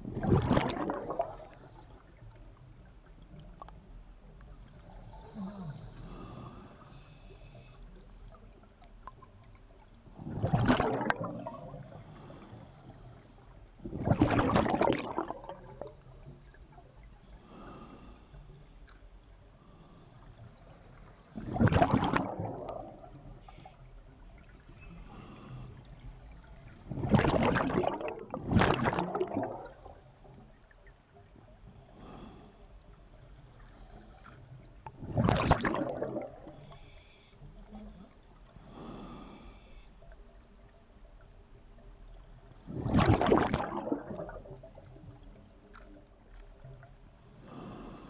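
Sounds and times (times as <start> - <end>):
scuba regulator exhaled bubbles: 0.0 - 1.8, 10.2 - 11.9, 13.8 - 16.0, 21.4 - 23.3, 26.8 - 30.1, 34.9 - 36.9, 42.7 - 45.1.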